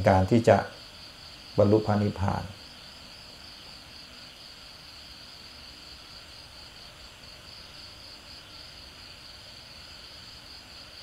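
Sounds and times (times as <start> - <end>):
faint low hiss: 0.0 - 11.0
insects chirring: 0.0 - 11.0.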